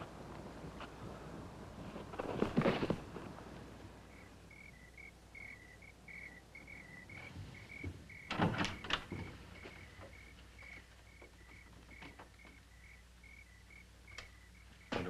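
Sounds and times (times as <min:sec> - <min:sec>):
crickets chirping: 0:03.9 - 0:15.0
wooden knocks and clatter: 0:07.2 - 0:10.2.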